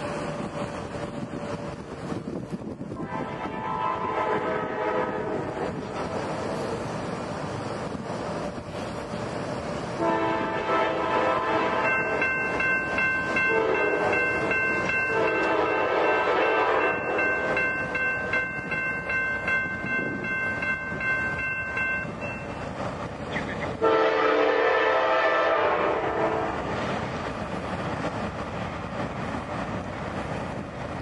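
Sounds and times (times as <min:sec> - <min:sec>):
locomotive air horn blasts: 0:03.0 - 0:05.7, 0:10.0 - 0:12.2, 0:13.4 - 0:14.2, 0:15.1 - 0:17.3, 0:23.8 - 0:26.7
bell ringing: 0:11.9 - 0:16.2, 0:16.8 - 0:22.6.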